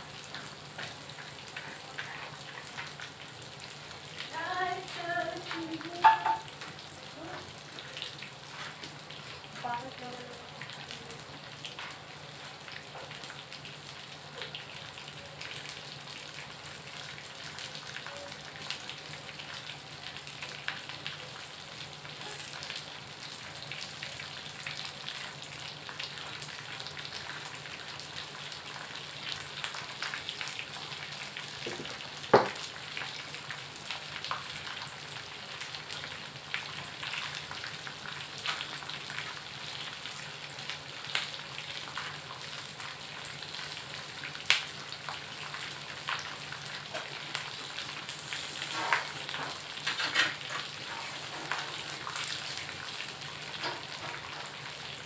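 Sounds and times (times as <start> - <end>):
peanuts and garlic sizzling: 0.0 - 55.0
loud sharp pop: 32.4 - 32.6.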